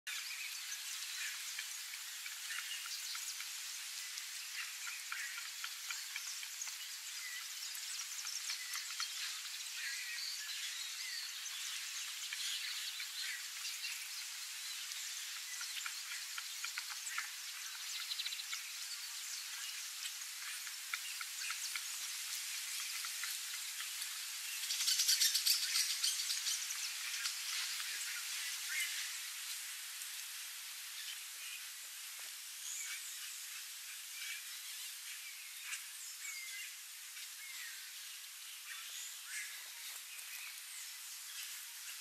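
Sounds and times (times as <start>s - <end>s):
insects calling: 0.1s - 31.7s.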